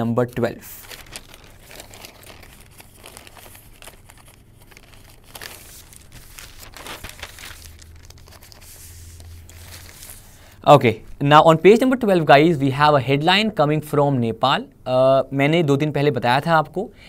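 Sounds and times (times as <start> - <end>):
newspaper pages rustling: 0.3 - 10.5.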